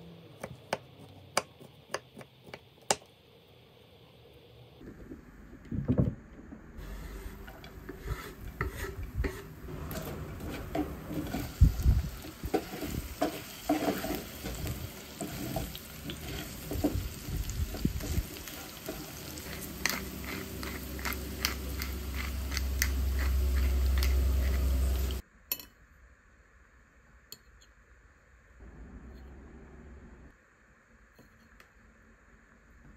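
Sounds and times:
utensil scraping a pan: 6.8 - 25.2
food sizzling in a frying pan: 9.8 - 25.2.

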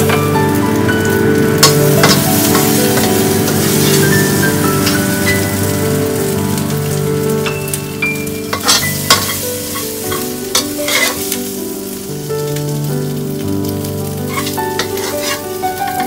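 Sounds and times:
background music: 0.0 - 16.0
steady hiss: 0.0 - 16.0
spatula scraping ceramic bowl: 14.4 - 15.5.

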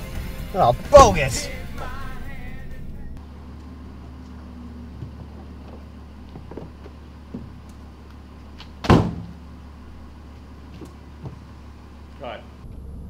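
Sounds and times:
steady low hum: 0.6 - 13.0
car door slamming: 4.8 - 9.6.

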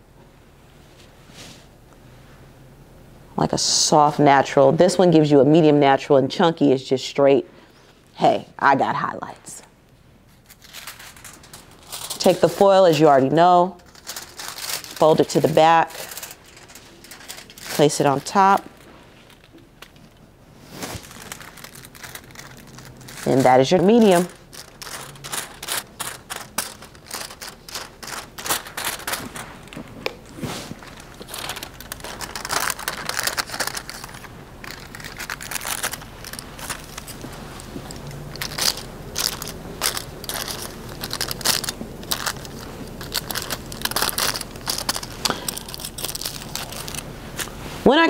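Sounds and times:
foil crinkling: 10.3 - 47.7.

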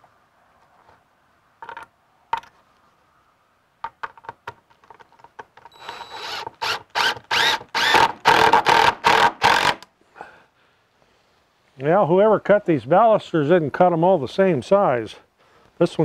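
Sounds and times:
cordless drill bursts into wood: 5.7 - 9.9.

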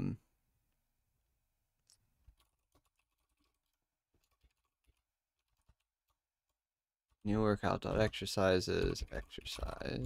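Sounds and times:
typing on computer keyboard: 2.2 - 7.2.

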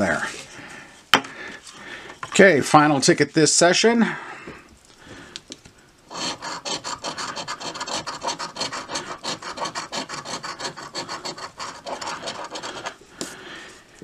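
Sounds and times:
coin scraping scratch-off ticket: 6.1 - 13.0.

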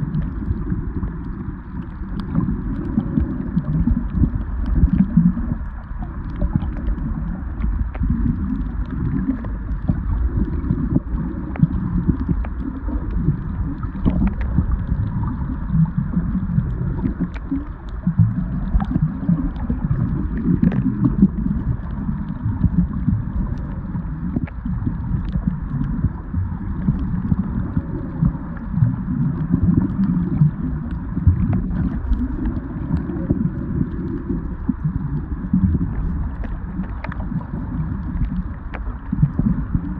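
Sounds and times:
muffled underwater rumble: 0.0 - 39.9
faint clicks: 0.1 - 15.1, 16.4 - 26.1, 33.8 - 39.8.

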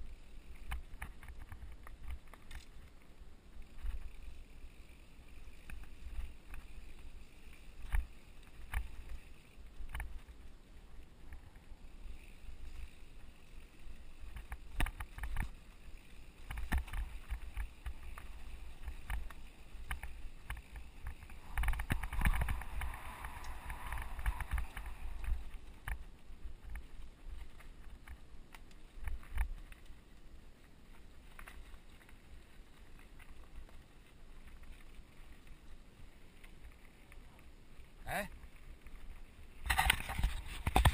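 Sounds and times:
bike tyres on dirt: 0.0 - 40.9
bike knocks and rattles: 16.3 - 26.0, 39.6 - 40.9
wind rumble on microphone: 16.5 - 28.2.

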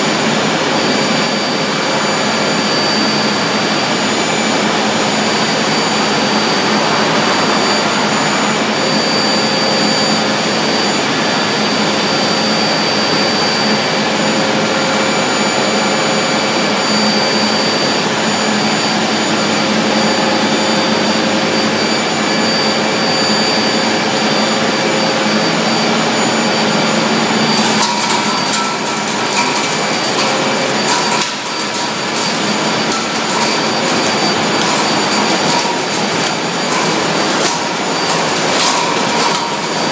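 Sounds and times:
machine whines: 0.0 - 39.9
machinery whirring hum: 0.0 - 39.9
rattling and clattering: 27.6 - 39.9.

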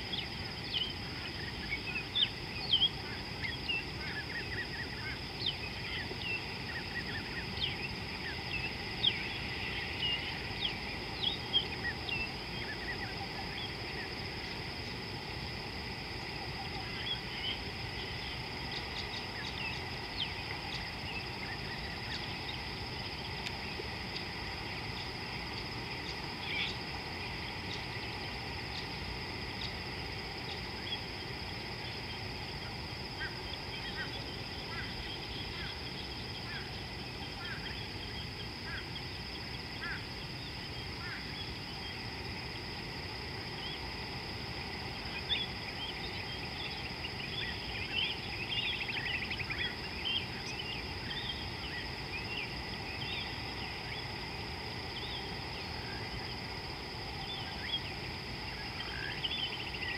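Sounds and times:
high insect drone: 0.0 - 59.9
low background noise: 0.0 - 59.9
birds twittering: 0.1 - 14.6, 16.6 - 24.2.

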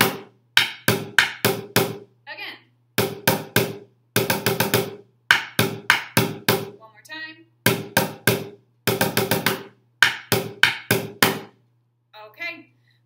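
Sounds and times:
drumsticks striking plastic bucket: 0.0 - 2.0, 7.7 - 11.5.

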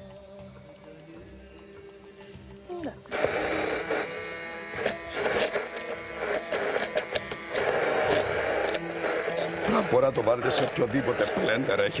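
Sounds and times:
hand blender motor buzzing: 3.1 - 12.0.

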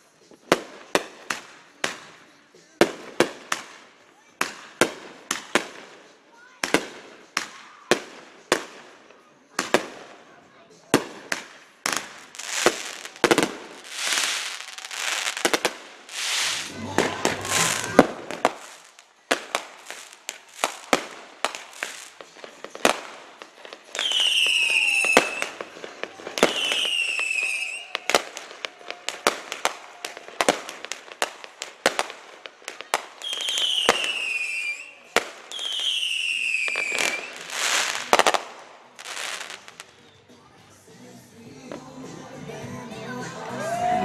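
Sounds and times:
fireworks bangs and crackles: 0.0 - 40.1
whistling fireworks: 10.9 - 40.2.

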